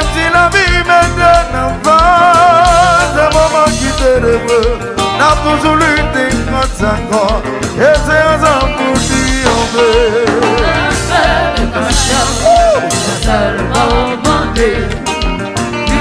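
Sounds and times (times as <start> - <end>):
upbeat dance music with singing: 10.5 - 15.2.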